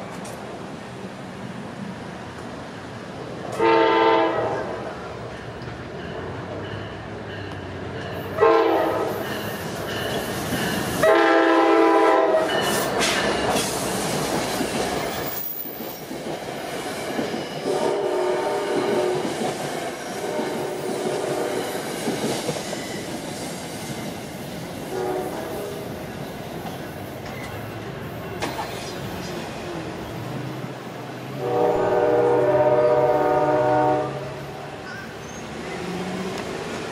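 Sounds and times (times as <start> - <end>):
train coaches rumbling and clacking: 0.0 - 36.9
train horn: 3.5 - 4.9, 8.4 - 9.4, 11.0 - 12.7, 17.6 - 19.3, 20.2 - 21.7, 24.9 - 25.9, 31.4 - 34.5
crossing bells dinging: 5.2 - 11.0, 12.3 - 15.3.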